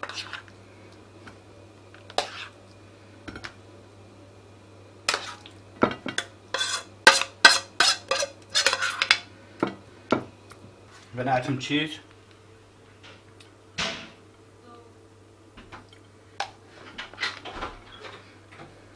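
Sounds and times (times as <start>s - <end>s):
spoon scraping frying pan: 0.0s - 0.4s, 2.0s - 2.6s, 5.1s - 9.2s.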